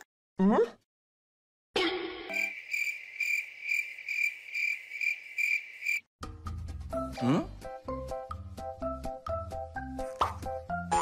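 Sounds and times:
cricket chirping: 2.3 - 6.1.

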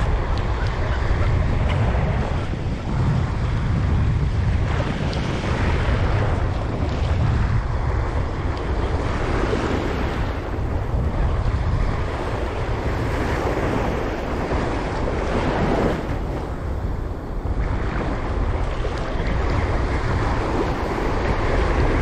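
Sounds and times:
waves washing: 0.0 - 22.0
wind buffeting microphone: 0.0 - 22.0.

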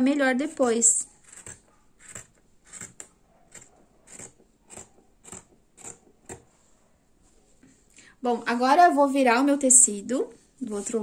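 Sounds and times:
scissors snipping fabric: 1.2 - 6.5.

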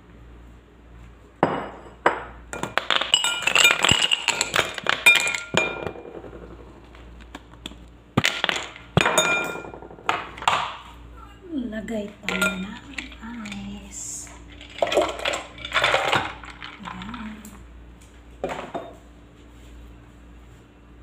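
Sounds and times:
glassware clinking: 1.4 - 6.0, 9.0 - 9.8, 12.3 - 13.6, 14.5 - 17.0.

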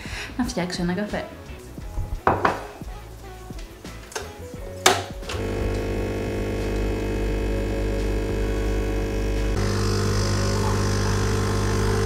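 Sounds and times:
coffee machine hiss: 5.3 - 12.0
coffee machine pump humming: 5.3 - 12.0.

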